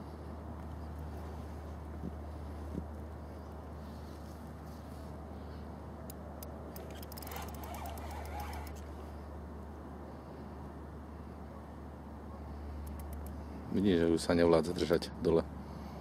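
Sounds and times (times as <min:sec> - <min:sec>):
rapid sharp clicks: 0:06.7 - 0:08.8.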